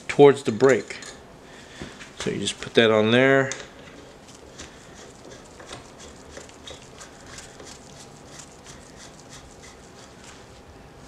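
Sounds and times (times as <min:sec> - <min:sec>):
gloved hands rustling: 0:04.0 - 0:10.7.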